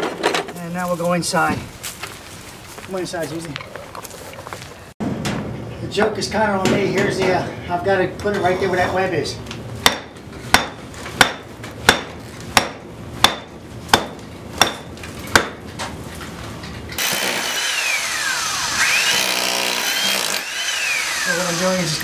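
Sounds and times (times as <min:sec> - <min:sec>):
hammer striking concrete block: 0:09.8 - 0:15.6
electric drill boring: 0:17.0 - 0:22.0.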